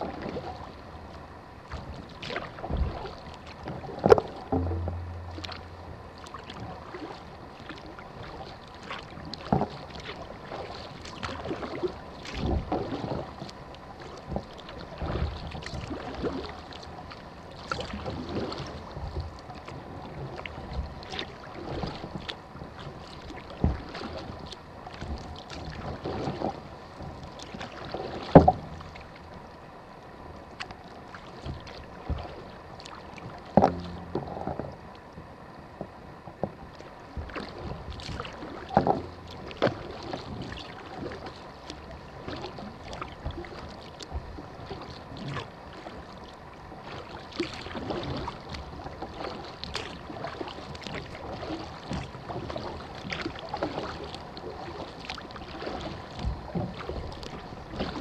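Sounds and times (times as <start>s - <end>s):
paddle splashing in water: 0.0s - 0.9s, 1.6s - 29.6s, 30.4s - 35.1s, 35.8s - 58.0s
sharp knocks: 4.5s - 6.0s.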